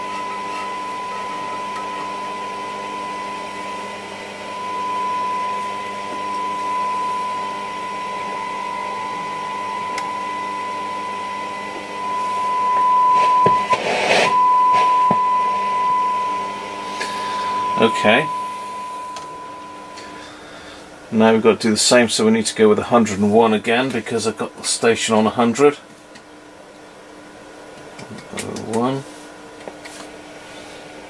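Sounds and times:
radio test tone: 0.0 - 20.4
radio hiss and clicks: 13.2 - 14.9.

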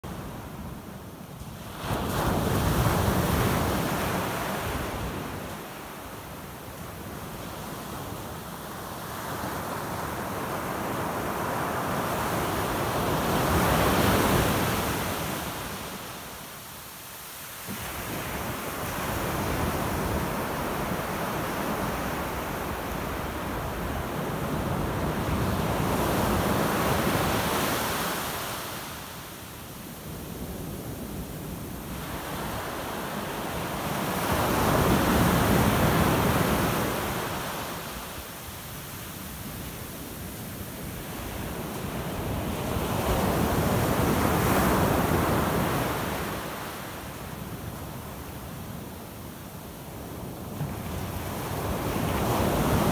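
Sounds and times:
ocean surf breaking on beach: 0.1 - 52.9
ocean wave breaking and rushing: 17.2 - 29.5, 30.2 - 39.4, 50.4 - 52.9.

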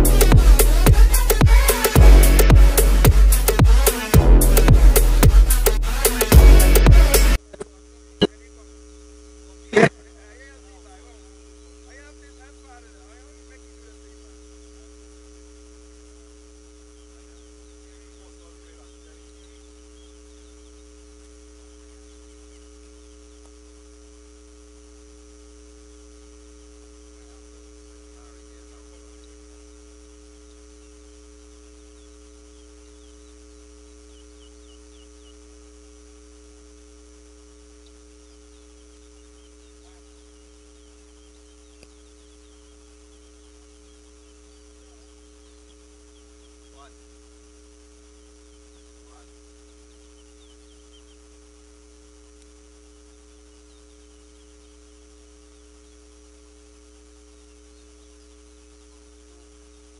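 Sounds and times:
steady electrical hum: 0.0 - 59.9
finches chirping: 10.3 - 13.4, 16.8 - 23.5, 28.2 - 35.7, 37.8 - 59.9.

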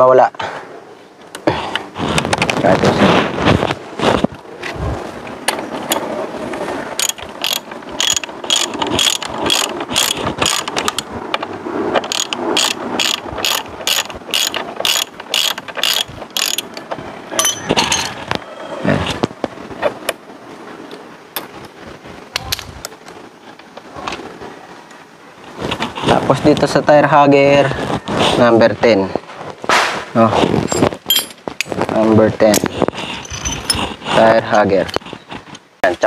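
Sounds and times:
ratchet wrench clicking: 7.0 - 10.7, 12.1 - 16.7.

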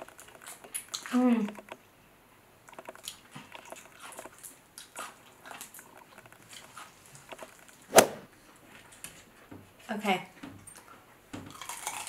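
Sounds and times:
sharp snap: 7.9 - 8.3.

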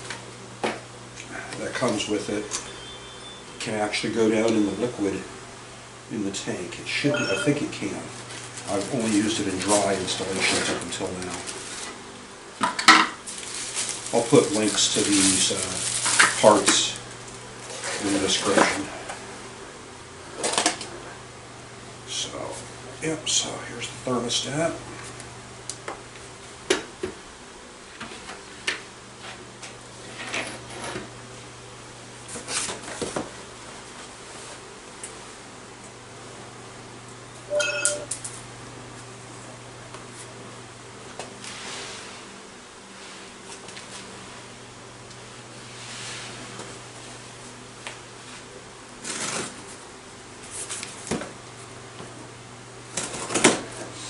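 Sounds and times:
cardboard scraping and rustling: 49.0 - 49.8.

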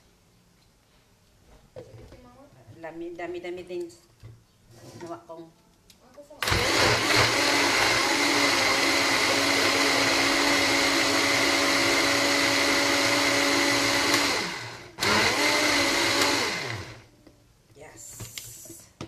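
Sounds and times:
electric blender motor: 6.4 - 17.1.

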